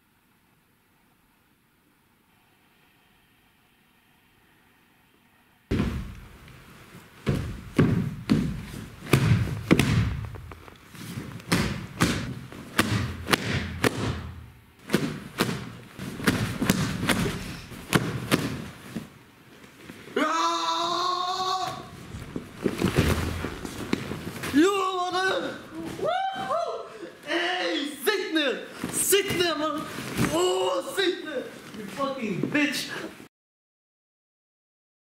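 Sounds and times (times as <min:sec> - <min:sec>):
heavy dull thumps: 0:05.7 - 0:06.5, 0:07.2 - 0:10.8, 0:22.0 - 0:24.6
person shouting: 0:20.2 - 0:22.0, 0:24.5 - 0:28.0.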